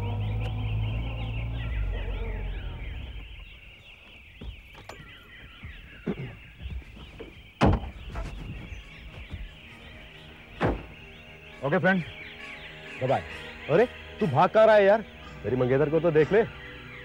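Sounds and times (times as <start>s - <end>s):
car engine running low: 0.0s - 9.7s
birds chirping: 0.0s - 17.0s
car door knocks and slam: 4.2s - 9.6s, 10.6s - 11.1s.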